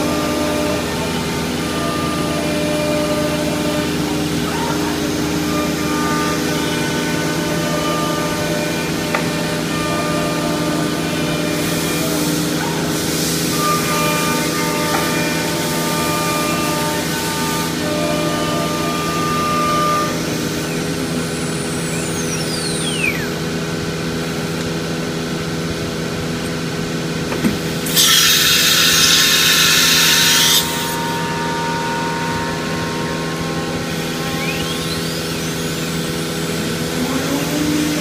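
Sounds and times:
router spindle machine hum: 0.0s - 38.0s
falling whistle: 19.0s - 23.5s, 28.9s - 36.1s
loud hiss: 27.5s - 32.7s.

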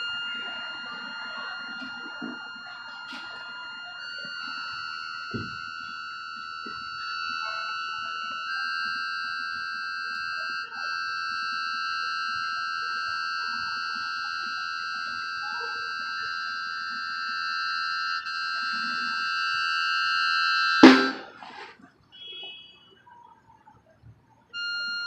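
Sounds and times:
high sustained instrument chord: 20.8s - 21.4s
loud hit: 20.8s - 21.5s.

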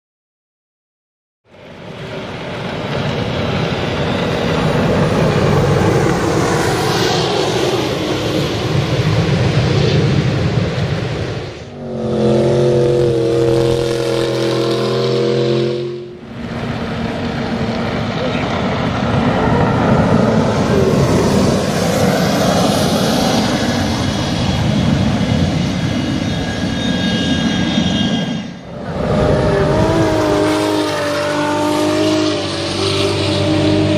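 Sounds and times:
jet boat engine at high revs: 2.3s - 10.2s, 11.0s - 33.9s
loud rushing noise: 3.0s - 33.9s
steady engine note: 11.4s - 25.4s, 26.9s - 33.9s.

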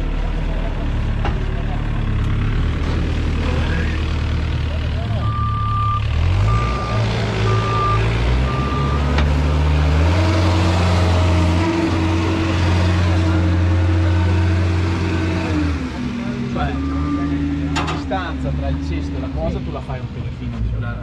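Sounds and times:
vehicle engine running: 0.0s - 21.0s
reversing alarm beeps: 5.2s - 9.0s.

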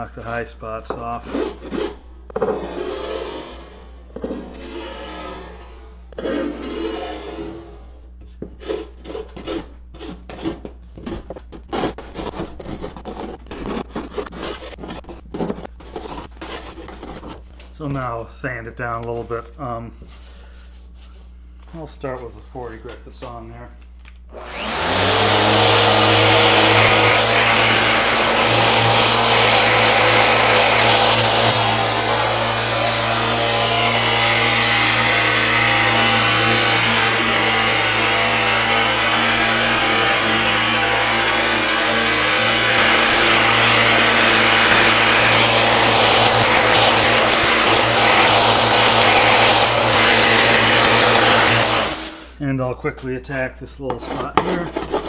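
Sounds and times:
rasp scraping over hard patch: 0.9s - 7.8s, 8.5s - 17.5s, 24.5s - 52.4s, 53.8s - 55.0s
electric sander motor hum: 24.3s - 52.3s
sandpaper hissing on hull: 26.0s - 52.0s.

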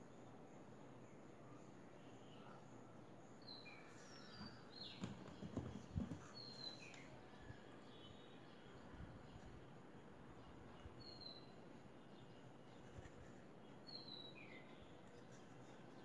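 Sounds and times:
faint bird chirps: 0.0s - 16.0s
wooden box knocking and bumping: 4.4s - 6.4s.

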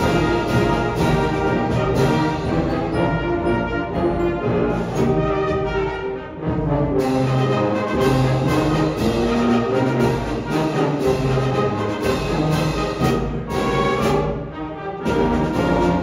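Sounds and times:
concert band and orchestra playing: 0.0s - 16.0s.

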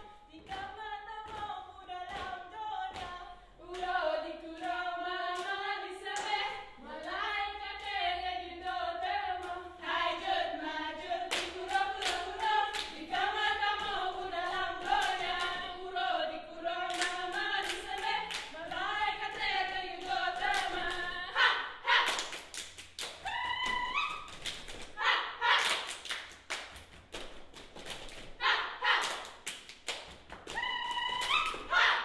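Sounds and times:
women chanting in unison: 0.0s - 22.3s, 25.0s - 25.9s, 28.4s - 29.3s, 30.5s - 32.0s
sharp hand claps: 25.6s - 28.3s, 29.0s - 31.7s.

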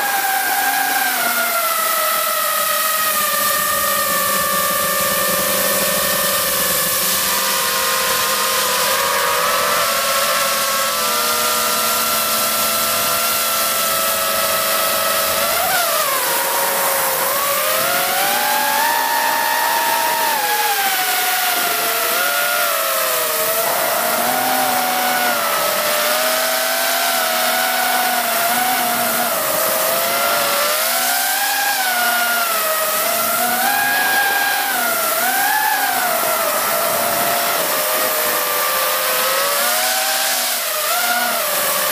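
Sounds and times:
drone motors whining: 0.0s - 41.9s.

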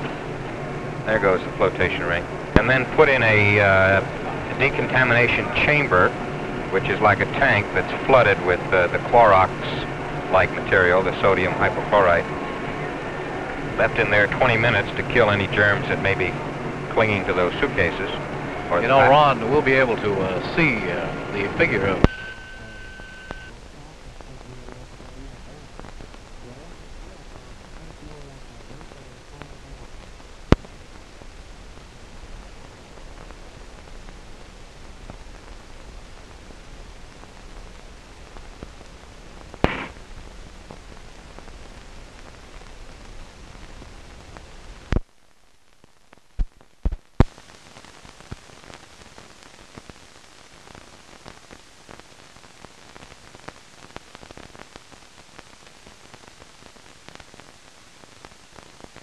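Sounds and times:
film soundtrack hiss: 0.0s - 59.0s
sharp clicks and pops: 28.8s - 30.8s, 39.4s - 40.1s, 44.3s - 45.2s, 45.8s - 47.4s.

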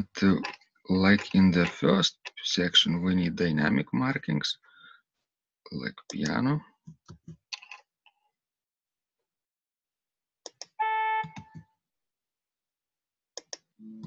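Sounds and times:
computer mouse clicks: 10.5s - 11.6s, 13.4s - 13.7s.

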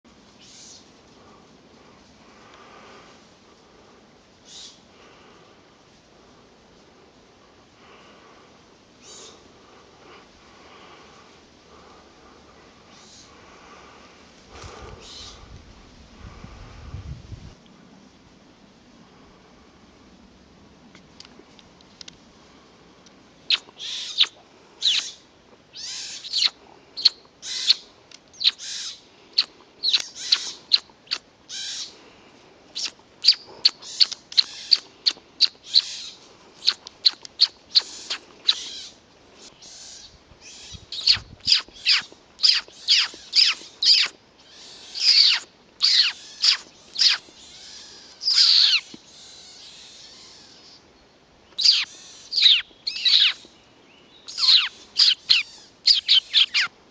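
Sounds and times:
high downward-sliding calls: 39.7s - 48.9s, 51.6s - 53.4s, 54.3s - 56.7s.

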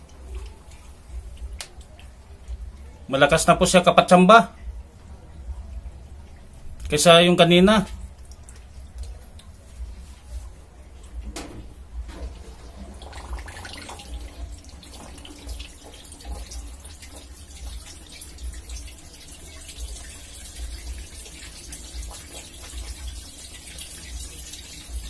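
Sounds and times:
water gushing onto concrete: 12.4s - 25.0s.

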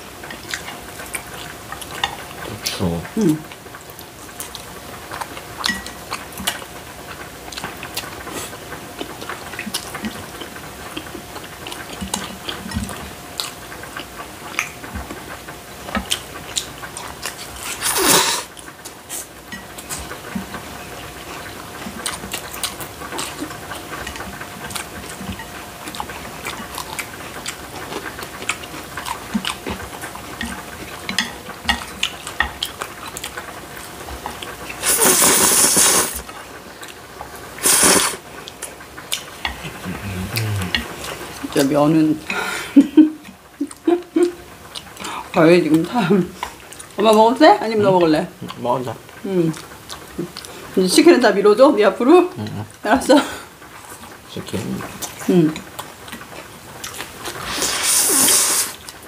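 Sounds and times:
faint steady hum: 0.0s - 59.0s
wet chewing smacks: 7.5s - 15.3s, 15.9s - 47.3s, 47.9s - 50.8s, 53.7s - 59.0s
loud noodle slurp: 17.6s - 18.5s, 34.8s - 36.2s, 37.6s - 38.2s, 57.3s - 58.8s.

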